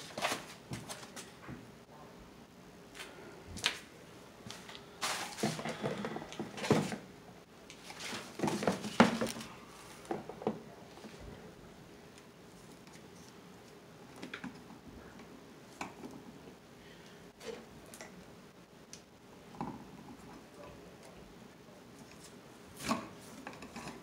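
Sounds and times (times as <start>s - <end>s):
handling knocks and rustles: 4.4s - 7.1s, 7.7s - 11.2s.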